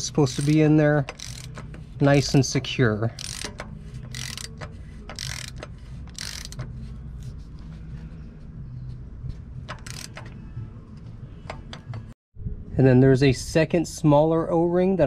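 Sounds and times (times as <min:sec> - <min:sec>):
hand ratchet clicking: 0:00.0 - 0:01.9, 0:03.2 - 0:06.7, 0:09.7 - 0:10.4.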